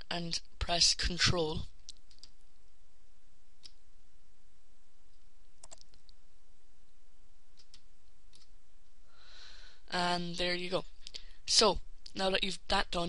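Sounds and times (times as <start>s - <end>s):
steady background hiss: 0.0s - 13.0s
computer mouse clicking: 1.8s - 2.4s, 3.6s - 3.8s, 5.1s - 6.2s, 7.5s - 8.5s.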